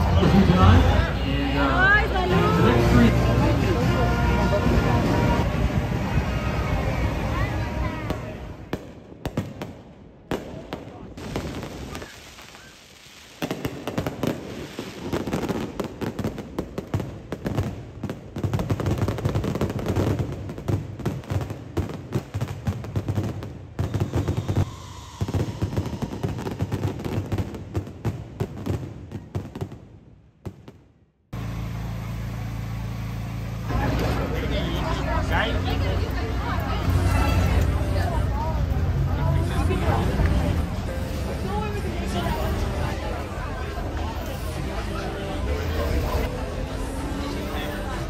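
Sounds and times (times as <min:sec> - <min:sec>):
steady low rumble: 0:00.0 - 0:11.7
fireworks bangs and crackles: 0:01.8 - 0:31.0.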